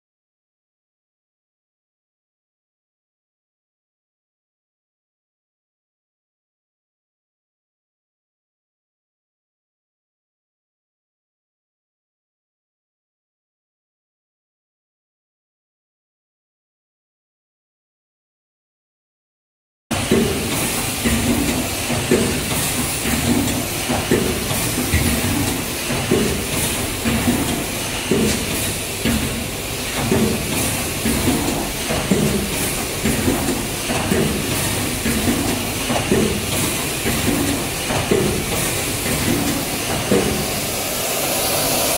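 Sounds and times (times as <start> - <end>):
packing machine knocking: 19.9 - 40.8.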